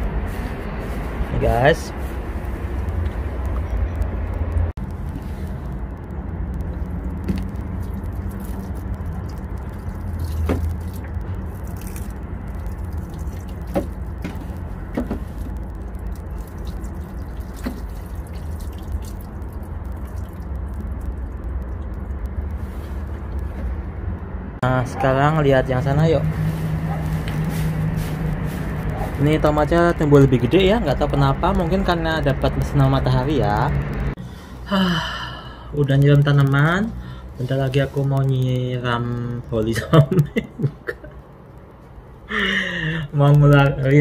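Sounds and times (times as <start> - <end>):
city traffic rumble: 0.0 - 44.0
water pouring onto soil: 6.7 - 23.1.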